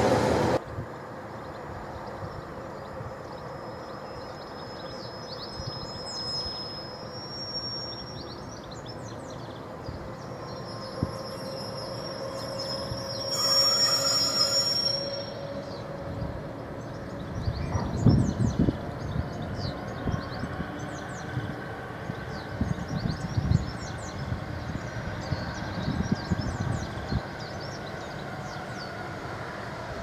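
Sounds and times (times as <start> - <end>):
diesel locomotive engines: 0.0 - 30.0
birds chirping: 1.4 - 29.5
wheel flange squeal: 10.2 - 16.2.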